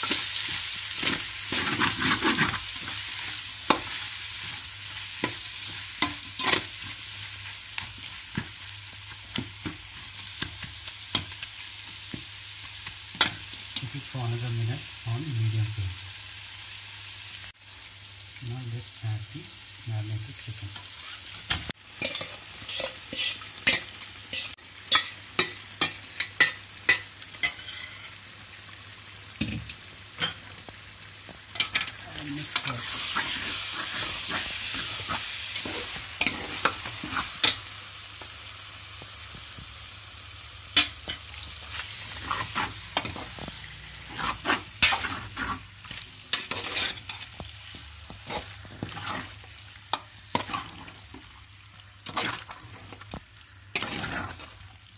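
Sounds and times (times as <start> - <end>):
chicken sizzling in oil: 0.0 - 54.9
ladle scraping metal pot: 22.0 - 25.1, 46.4 - 47.2, 53.7 - 54.5.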